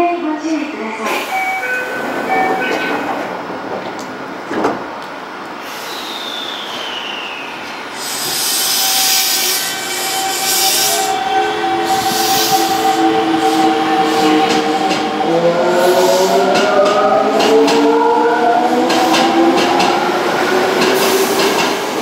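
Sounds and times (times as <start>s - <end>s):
train hiss: 1.0s - 1.7s, 5.5s - 14.9s, 15.7s - 16.6s.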